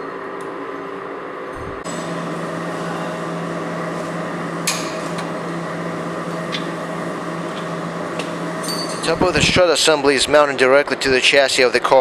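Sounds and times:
workshop hum: 0.0s - 12.0s.

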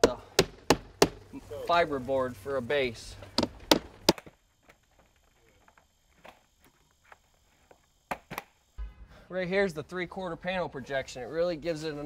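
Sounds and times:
hammer nailing siding panels: 0.0s - 1.3s, 3.4s - 4.3s.

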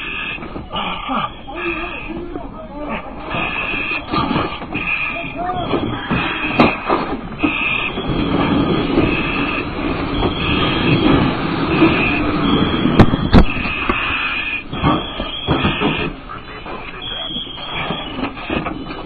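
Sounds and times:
steady rumbling noise: 0.0s - 19.0s
high-pitched electronic alarm tone: 7.4s - 19.0s.

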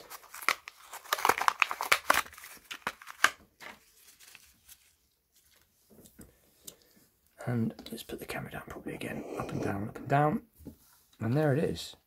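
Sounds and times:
plastic packaging crinkling and tearing: 0.0s - 5.0s.

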